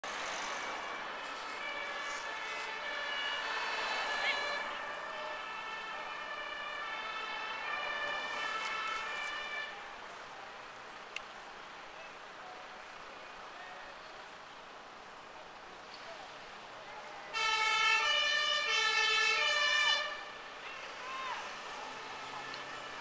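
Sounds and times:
two-tone fire engine sirens: 0.6 - 10.0, 17.3 - 23.0.

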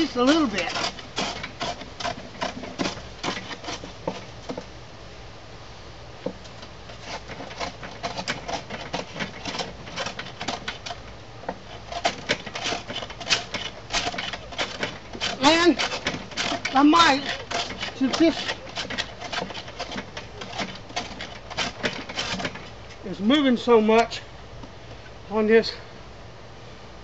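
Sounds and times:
hand plane scraping wood: 0.0 - 4.7, 6.9 - 22.8.

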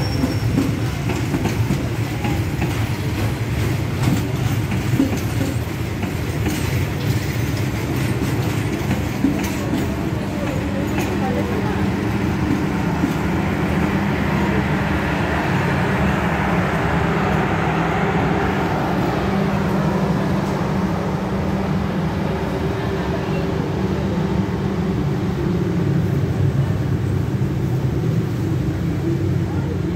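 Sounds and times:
train wheels rumbling on rails: 0.0 - 29.9.

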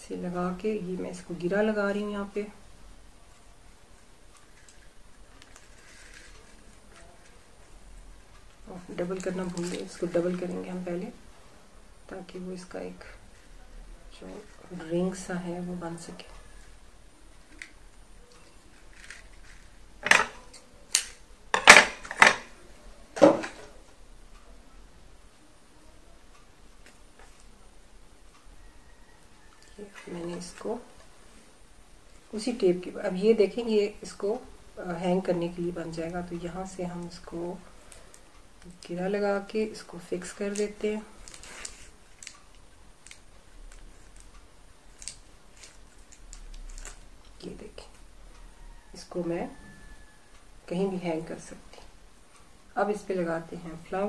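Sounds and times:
wire twisting faint ticks: 4.2 - 10.5, 40.3 - 49.0.

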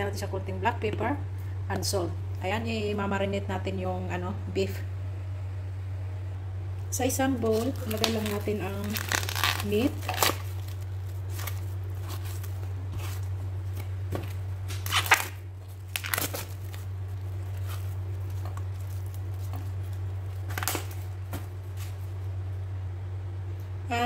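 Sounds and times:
steady low hum: 0.0 - 24.0
raw meat slapping and scraping: 7.4 - 22.1.

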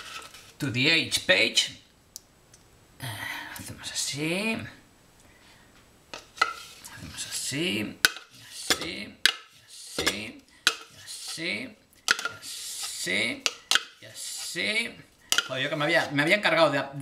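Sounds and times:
metal spoon scraping a dish: 6.2 - 7.5, 8.1 - 16.1.

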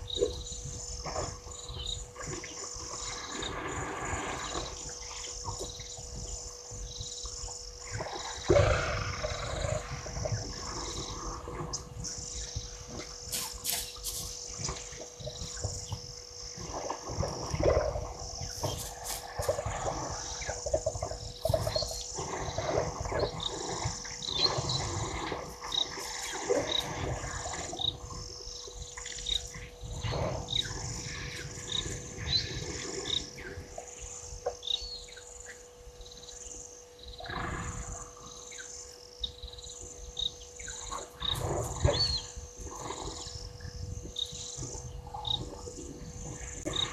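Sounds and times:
insects buzzing: 0.0 - 46.9
elephants rumbling: 7.8 - 15.8, 37.2 - 38.3.

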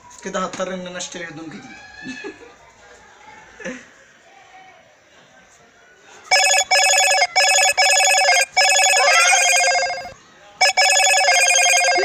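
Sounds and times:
pulsing electronic ringing tone: 6.3 - 12.0.

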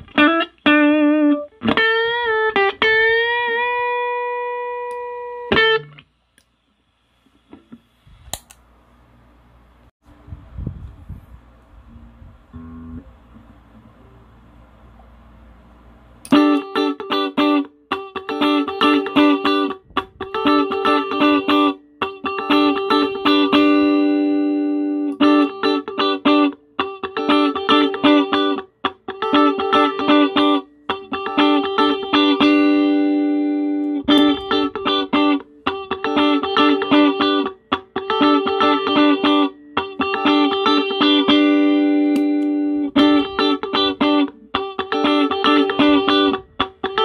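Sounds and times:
electric guitar picked figure: 11.9 - 14.3, 16.2 - 47.0.

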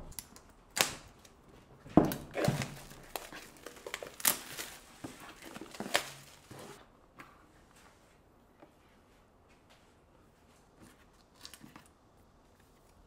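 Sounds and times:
plastic film crinkling and tearing: 2.1 - 6.8.

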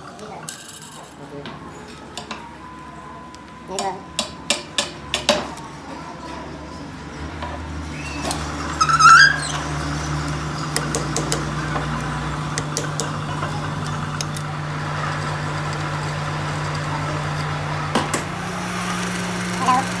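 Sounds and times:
short high squeak: 7.9 - 9.8
metal lathe humming: 8.8 - 20.0.

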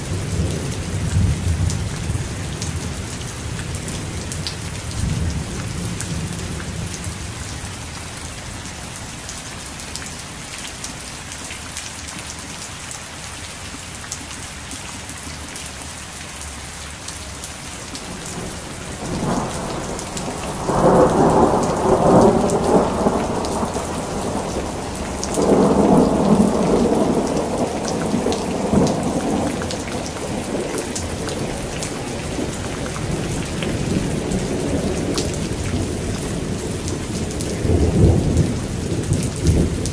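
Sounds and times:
heavy rain: 0.0 - 39.9
thunder rolling: 18.3 - 39.9.

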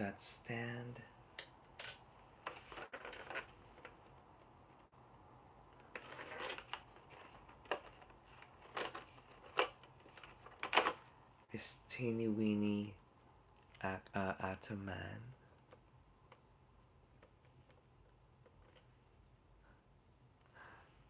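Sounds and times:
light plastic rustling: 5.7 - 11.2.

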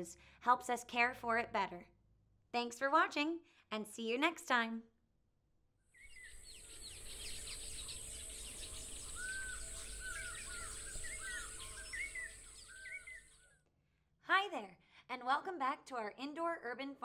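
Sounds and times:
arched bird calls: 6.0 - 13.6
small birds chirping: 6.0 - 13.6.

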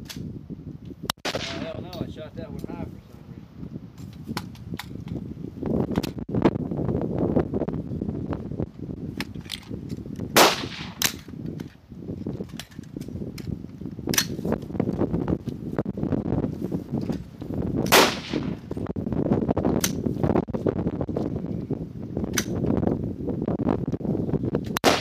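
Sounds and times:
wind on microphone: 0.0 - 25.0
rifle shots: 1.2 - 1.8, 10.4 - 11.2, 17.9 - 18.6.

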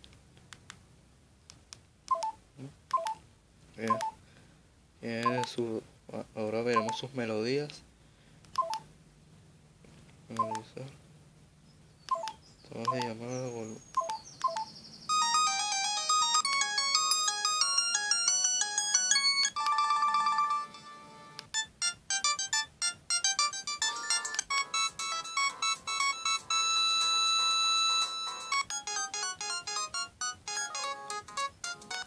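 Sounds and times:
phone ringtone melodies: 14.0 - 32.0.

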